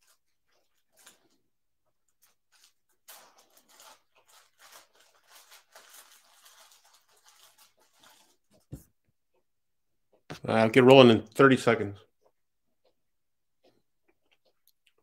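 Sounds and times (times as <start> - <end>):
faint rustling and crinkling: 0.0 - 9.5.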